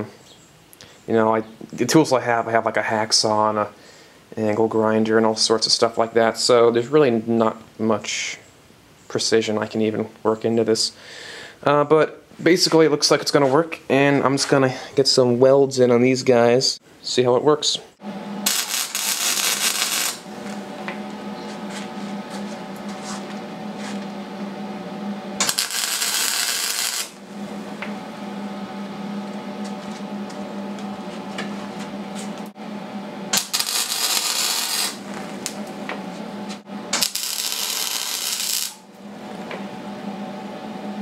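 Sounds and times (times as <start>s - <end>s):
steady hum: 9.4s - 41.0s
welding arc crackling: 18.4s - 20.7s, 25.4s - 27.2s, 33.3s - 35.8s, 36.9s - 39.0s.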